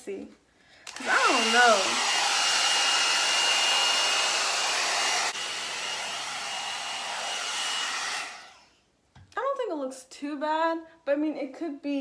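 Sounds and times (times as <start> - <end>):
hair dryer brush running: 0.9 - 8.8.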